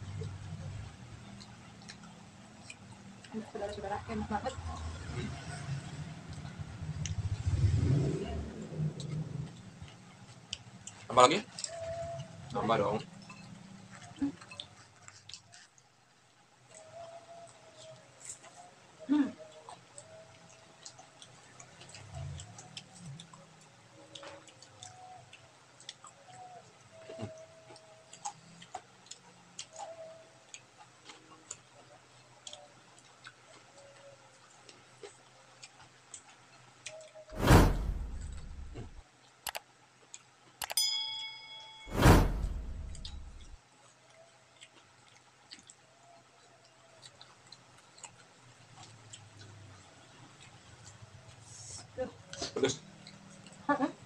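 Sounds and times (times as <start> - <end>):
close chewing: 0.0 - 37.3, 43.8 - 54.0
small clicks of eating: 0.0 - 37.4, 38.9 - 40.9, 43.6 - 54.0
loud sudden burst effect: 37.4 - 39.0, 41.9 - 43.6
low dull thump: 37.4 - 39.0, 41.9 - 43.6
short bright chime: 40.6 - 43.6.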